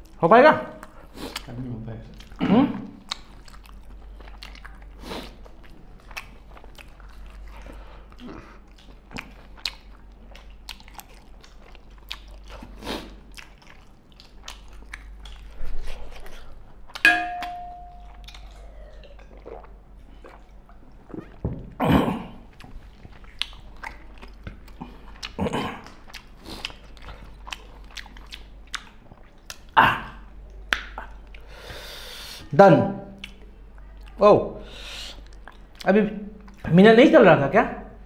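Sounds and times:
chewing and biting: 0.8 - 17.1, 22.5 - 29.8
sharp ringing clink: 17.1 - 18.2.

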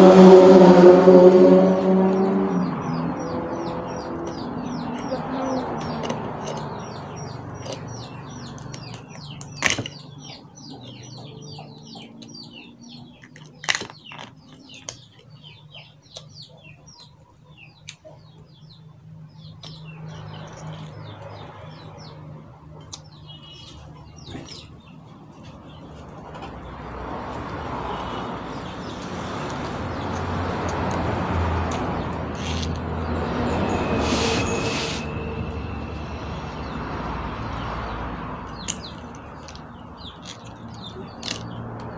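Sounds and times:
vehicle engine passing: 0.0 - 13.3, 18.2 - 41.9
small birds chirping: 2.0 - 41.9
crab shell cracking: 41.2 - 41.9.

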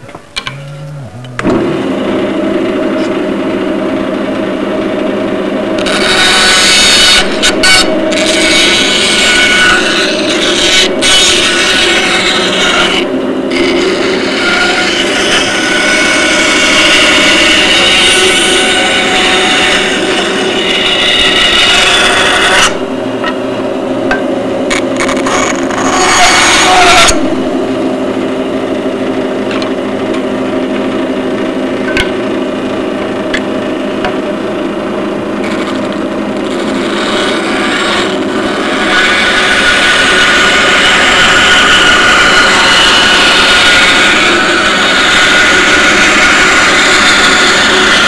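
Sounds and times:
power tool motor running: 0.0 - 3.8, 36.9 - 48.0
rough cutting noise: 0.0 - 4.2, 5.7 - 23.0, 24.6 - 27.6, 35.3 - 48.0.

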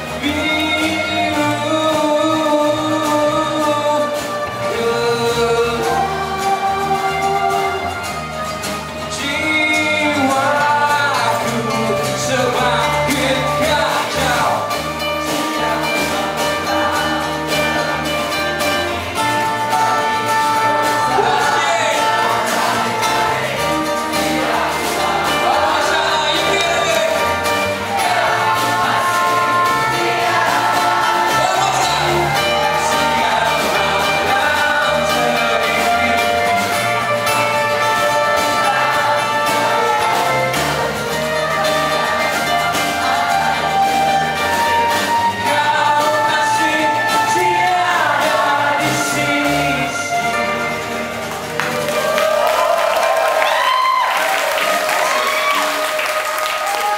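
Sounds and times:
man singing: 0.0 - 51.6
electric bass: 0.0 - 53.8
drums: 0.0 - 56.9
strummed acoustic guitars: 0.0 - 56.9.

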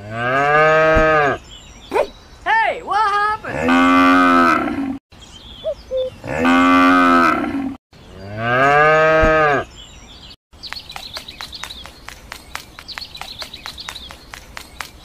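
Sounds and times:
cows mooing: 0.0 - 1.4, 3.5 - 5.0, 6.2 - 9.7
quick sharp taps: 10.6 - 15.0.

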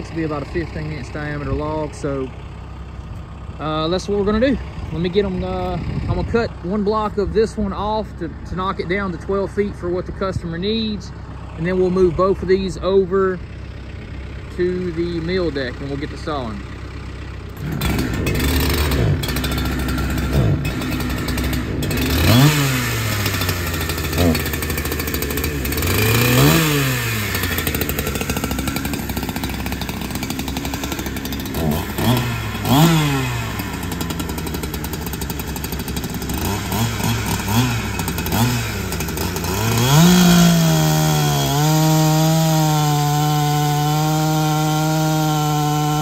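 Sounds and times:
chainsaw revving: 14.1 - 46.0
chainsaw cutting log: 17.5 - 46.0.

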